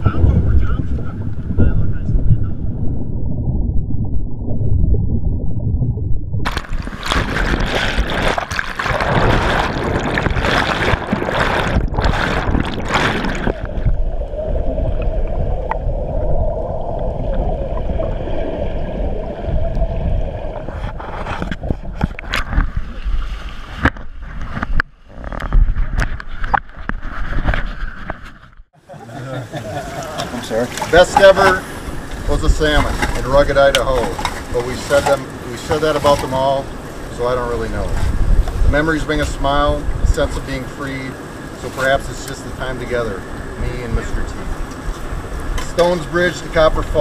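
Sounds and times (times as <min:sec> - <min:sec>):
muffled underwater rushing: 0:00.0 - 0:47.0
loud water splashing: 0:06.4 - 0:23.9, 0:29.4 - 0:37.9.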